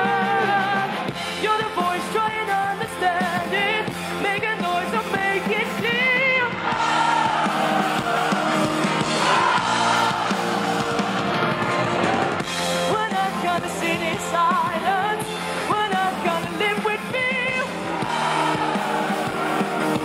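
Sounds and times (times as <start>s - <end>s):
woman singing into a microphone: 0.0s - 6.6s, 12.9s - 17.8s
drums: 0.0s - 20.0s.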